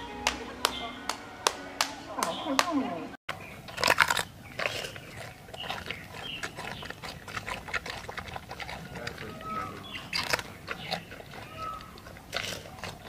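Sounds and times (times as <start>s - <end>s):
panda crunching and chewing bamboo: 3.3s - 13.0s.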